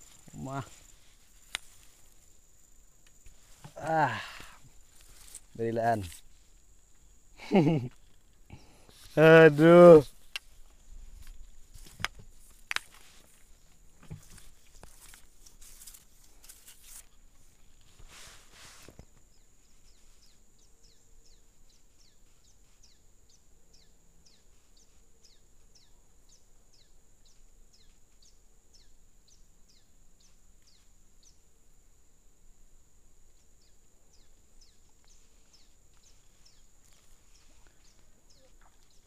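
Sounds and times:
faint bird calls: 33.6s - 39.0s.

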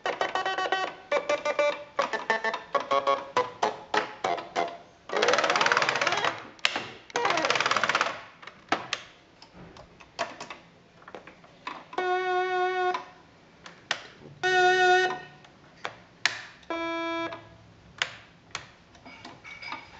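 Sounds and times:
electronic keyboard held notes: 14.4s - 15.4s.

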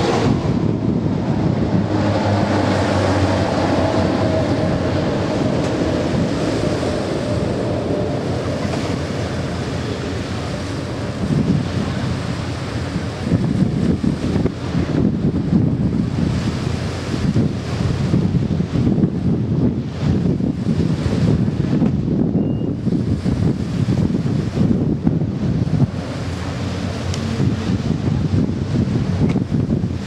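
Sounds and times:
propeller aircraft droning overhead: 0.0s - 30.0s
wind on microphone: 0.0s - 30.0s.

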